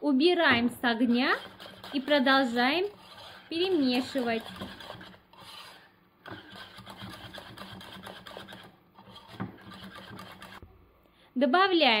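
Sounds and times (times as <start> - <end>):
whisk rattling in metal saucepan: 0.8 - 10.6.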